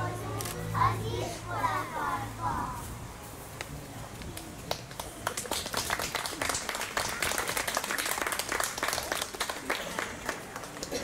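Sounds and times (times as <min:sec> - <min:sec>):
small crowd applauding: 0:04.4 - 0:11.0.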